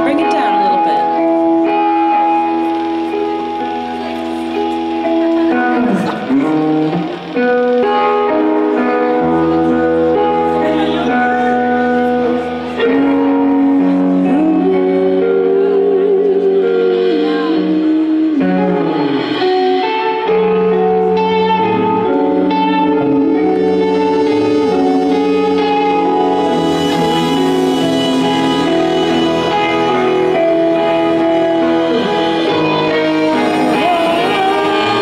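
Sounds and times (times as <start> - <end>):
bass guitar: 0.0 - 35.0
electric guitar: 0.0 - 35.0
person singing: 1.1 - 35.0
saxophone: 20.3 - 35.0.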